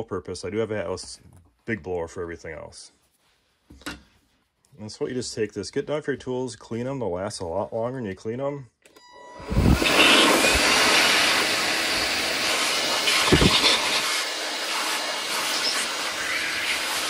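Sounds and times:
handheld blower rushing air: 0:09.4 - 0:17.0.

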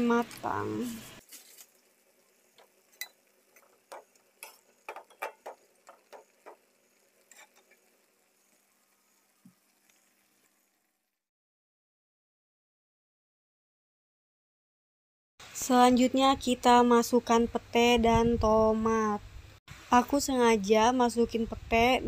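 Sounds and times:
water simmering in a wok: 0:00.0 - 0:11.3.

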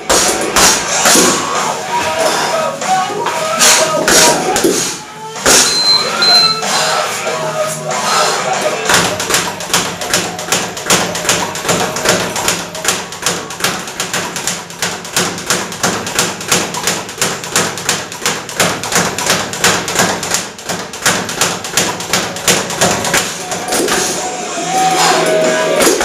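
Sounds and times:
speed bag being punched: 0:00.0 - 0:01.5, 0:08.9 - 0:24.1.

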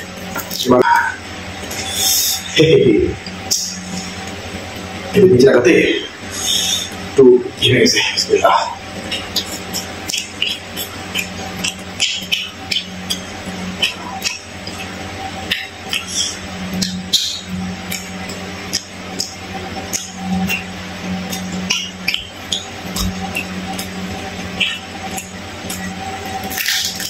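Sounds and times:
steady low hum: 0:00.0 - 0:27.0
chewing and wet mouth smacks: 0:09.1 - 0:14.9, 0:15.5 - 0:17.3, 0:21.3 - 0:27.0.

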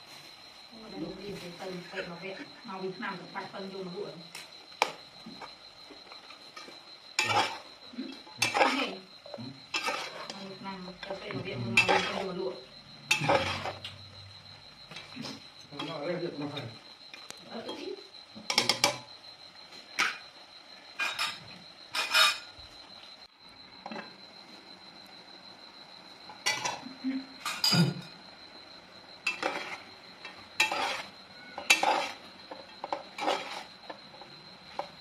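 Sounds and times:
metal spatula scraping a pot: 0:07.2 - 0:07.6, 0:09.7 - 0:10.4, 0:11.8 - 0:12.3, 0:13.1 - 0:13.8, 0:21.0 - 0:22.5, 0:29.3 - 0:29.8, 0:30.6 - 0:33.7.

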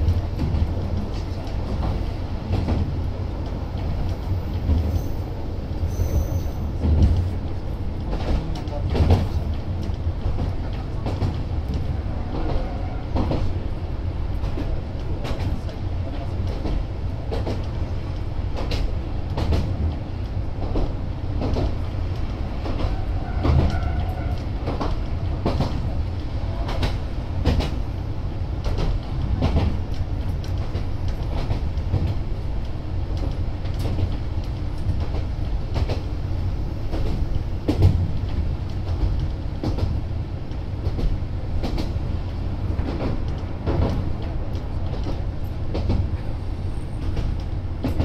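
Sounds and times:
train wheels clacking over joints: 0:20.6 - 0:27.8, 0:40.8 - 0:48.0.

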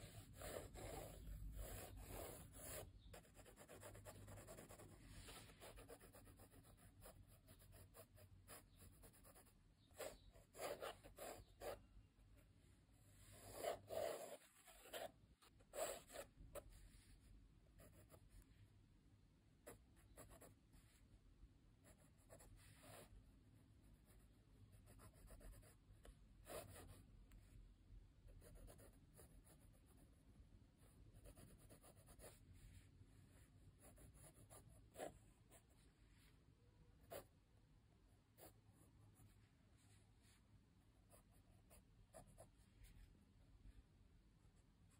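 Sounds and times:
pencil scratching on paper: 0:00.0 - 0:11.8, 0:13.2 - 0:17.2, 0:17.8 - 0:18.4, 0:21.8 - 0:23.1, 0:24.0 - 0:25.8, 0:26.4 - 0:27.1, 0:28.4 - 0:30.0, 0:30.8 - 0:32.8, 0:33.7 - 0:35.8, 0:38.3 - 0:39.5.

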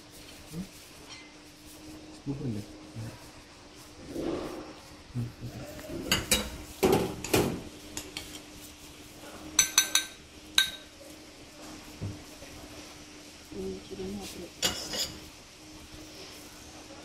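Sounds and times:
spoon scraping ceramic bowl: 0:14.6 - 0:15.2.

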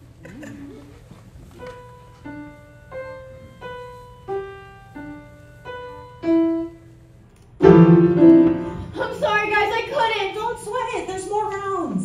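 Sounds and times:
piano playing single notes: 0:07.6 - 0:09.3.

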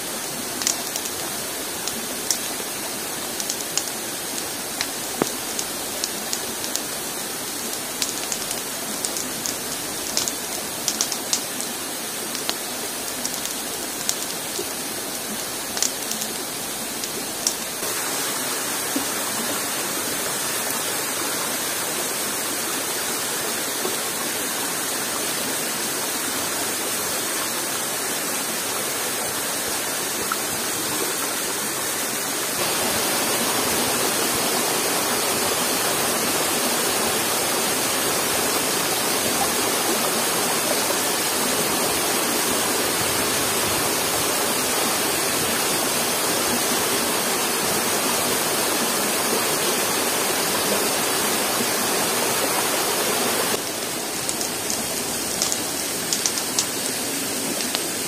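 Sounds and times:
waterfall rushing: 0:00.0 - 0:58.0.

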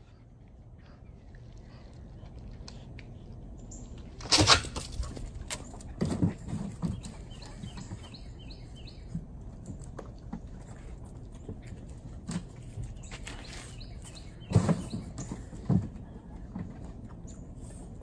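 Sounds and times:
small birds chirping: 0:05.5 - 0:09.8, 0:10.7 - 0:16.4.

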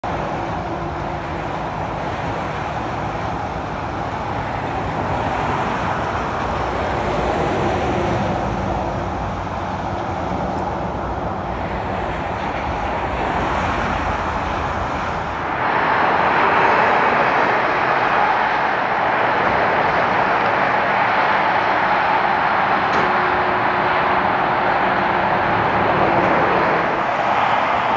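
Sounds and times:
motorway traffic passing: 0:00.0 - 0:27.9.

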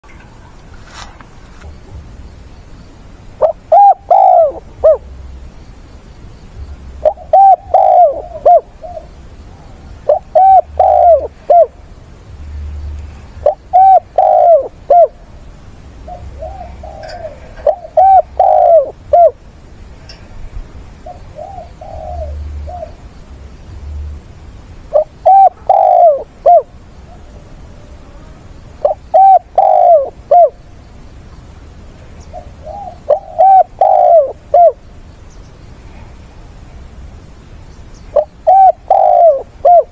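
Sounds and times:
dove cooing: 0:03.4 - 0:05.1, 0:07.0 - 0:11.8, 0:13.3 - 0:15.2, 0:16.0 - 0:19.4, 0:21.0 - 0:23.1, 0:24.9 - 0:30.6, 0:32.2 - 0:34.8, 0:38.1 - 0:39.9.

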